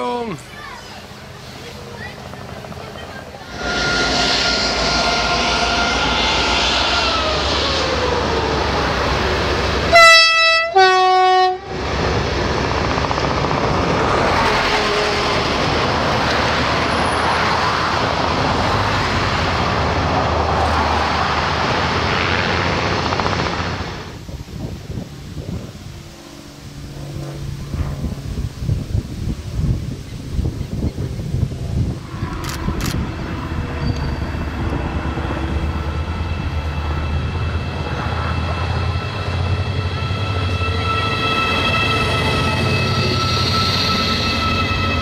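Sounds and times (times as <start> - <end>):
freight wagons rumbling past: 0.0 - 10.5, 11.6 - 45.0
locomotive horn blasts: 3.5 - 7.4, 9.8 - 11.8.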